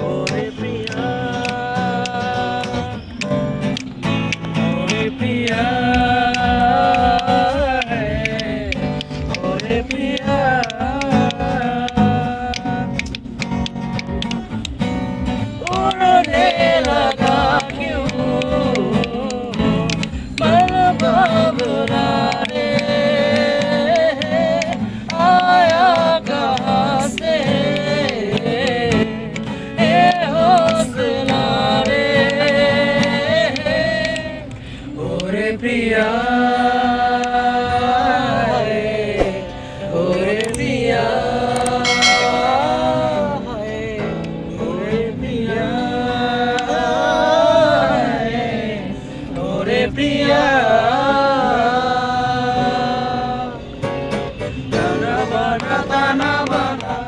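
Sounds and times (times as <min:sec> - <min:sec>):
man singing: 0:00.0 - 0:03.2, 0:04.7 - 0:13.3
acoustic guitar: 0:00.0 - 0:57.0.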